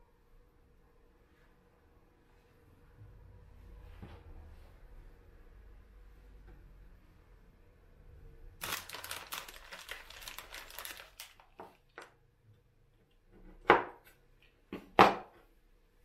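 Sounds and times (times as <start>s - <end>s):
crinkly rustling: 8.6s - 12.2s.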